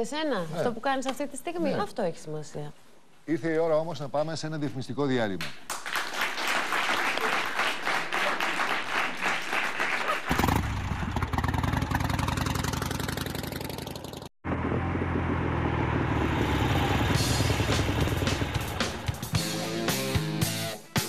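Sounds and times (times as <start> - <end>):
audience applauding: 5.7 - 10.6.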